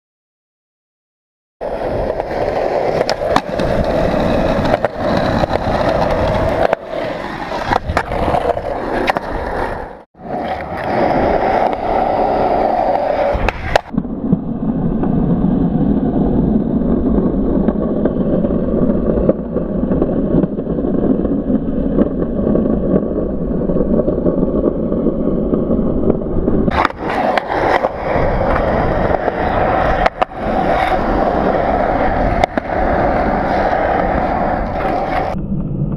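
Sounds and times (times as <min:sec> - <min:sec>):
skateboard wheels rolling on concrete: 0:01.6 - 0:35.9
skateboard clacks and knocks: 0:01.7 - 0:14.0, 0:25.5 - 0:35.9.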